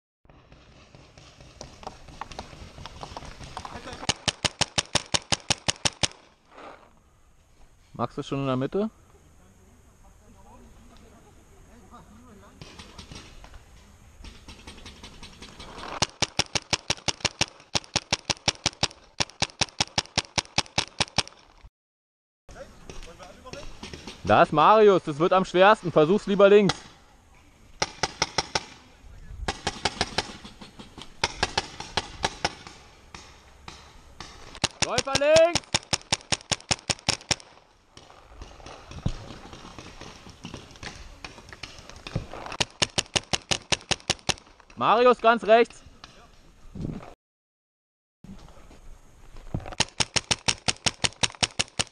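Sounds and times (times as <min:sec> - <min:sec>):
paintball marker firing: 0:00.5 - 0:06.3, 0:14.2 - 0:21.4, 0:27.8 - 0:28.8, 0:29.5 - 0:44.7, 0:49.7 - 0:51.9.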